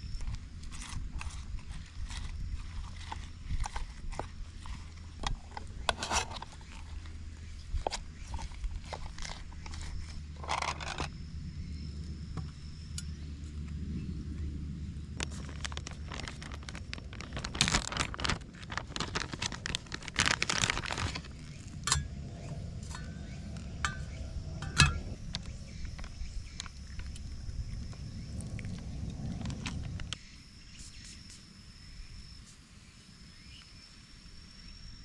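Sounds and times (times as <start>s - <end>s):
plastic bag rustling: 0.6s - 7.1s, 15.2s - 23.0s
ice cubes clinking into metal mug: 23.8s - 25.1s.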